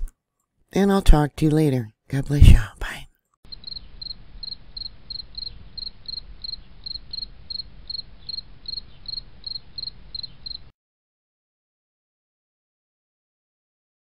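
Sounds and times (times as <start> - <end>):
insect chirping: 3.5 - 10.7.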